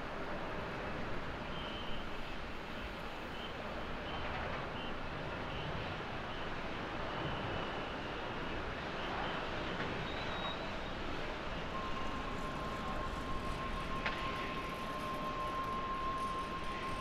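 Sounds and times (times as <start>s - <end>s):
steady high tone: 11.7s - 17.0s.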